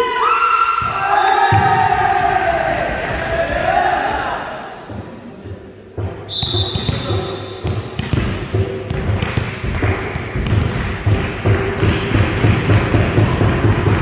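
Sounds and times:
low repeating beat: 2.6 - 14.0
referee's whistle blowing: 6.3 - 7.6.

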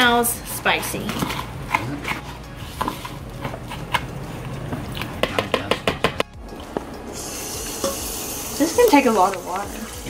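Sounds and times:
metal spoon stirring in a bowl: 0.6 - 4.1.

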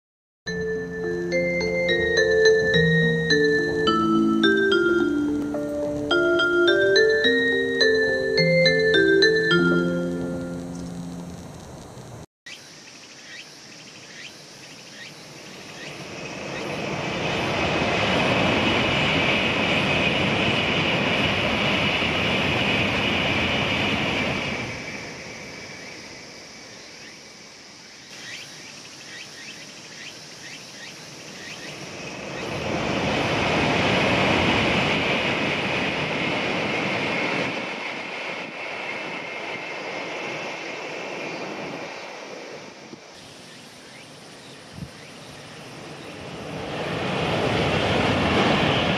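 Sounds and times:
high-speed trains rushing past: 0.5 - 12.2, 14.3 - 28.4, 29.4 - 48.9
steady high hiss: 0.5 - 17.5, 24.5 - 33.4, 39.7 - 47.0.

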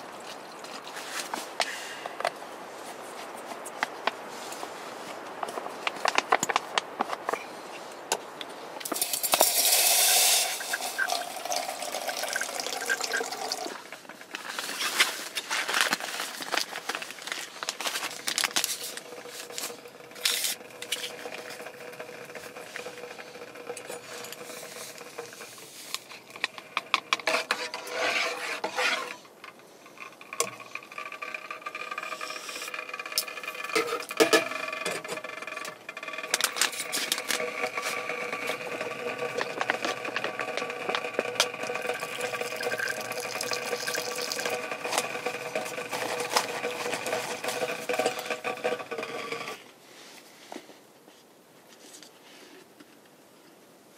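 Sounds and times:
handling clicks and rustles: 0.0 - 49.8
water splashing into metal pot: 9.0 - 13.9, 37.6 - 46.0
water trickling into pouch: 10.5 - 26.6, 36.2 - 49.4.

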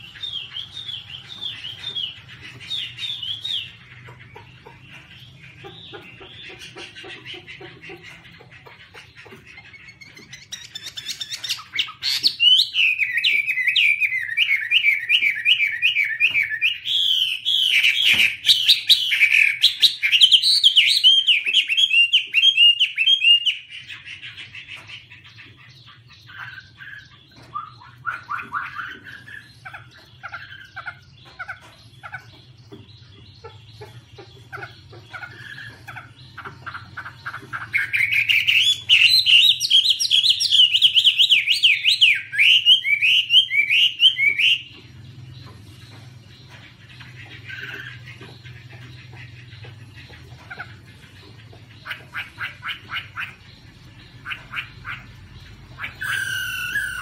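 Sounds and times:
bird singing whistled phrases: 55.9 - 57.0.

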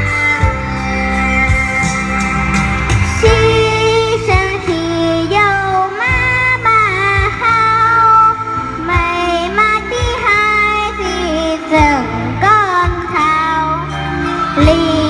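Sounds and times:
instrumental accompaniment with bass beat: 0.0 - 15.0
girl singing into a microphone: 3.2 - 15.0.

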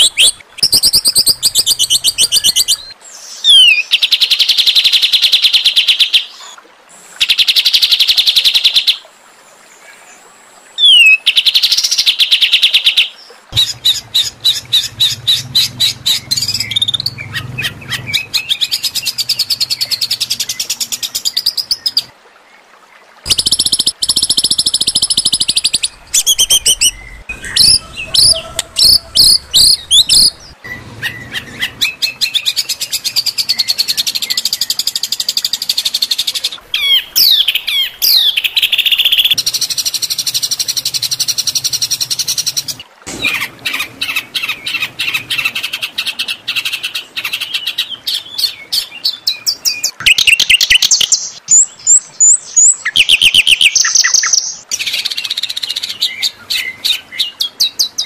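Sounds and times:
bird rattling trills: 23.3 - 32.0.

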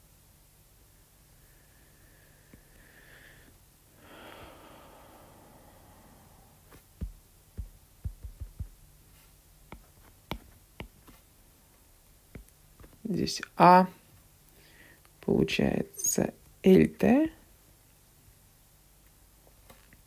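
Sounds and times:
faint breath: 1.3 - 6.9, 14.5 - 15.1
stylus tapping on pen tablet: 7.0 - 8.8, 9.7 - 11.2, 12.3 - 13.0.

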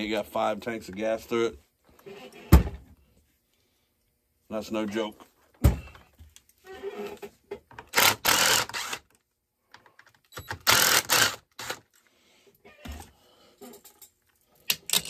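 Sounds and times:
cordless drill bursts: 7.9 - 9.1, 10.4 - 11.8.

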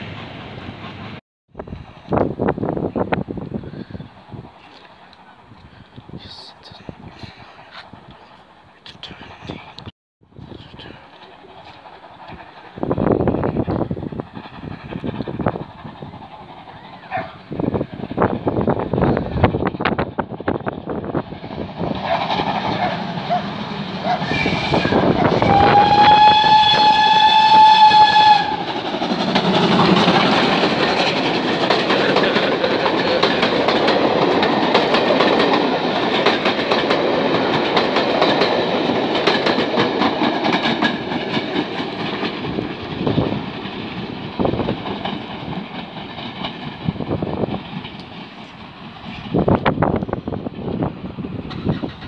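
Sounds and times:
train wheels clicking over rail joints: 10.8 - 52.0
steam locomotive whistle: 23.4 - 28.8.

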